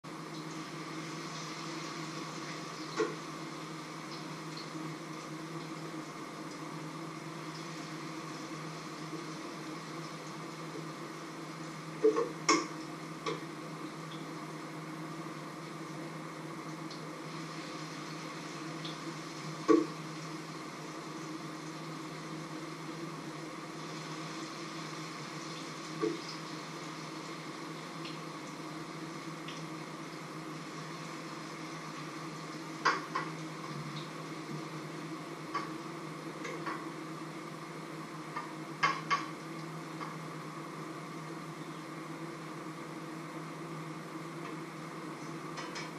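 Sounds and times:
food cooking hum and hiss: 0:00.0 - 0:45.9.

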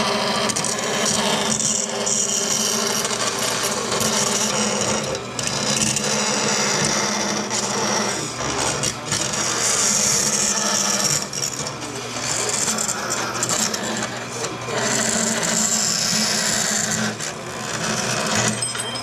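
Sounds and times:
bandsaw motor hum: 0:00.0 - 0:19.0.

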